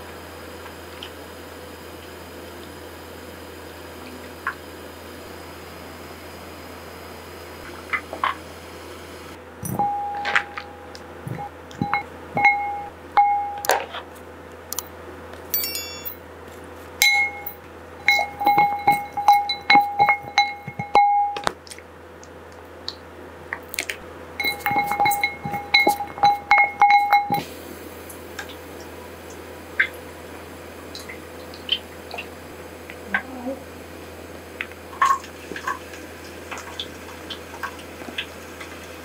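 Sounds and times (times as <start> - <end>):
spoon clinking against glass bowl: 9.6 - 13.7, 15.6 - 16.2, 17.0 - 21.5, 24.4 - 27.4.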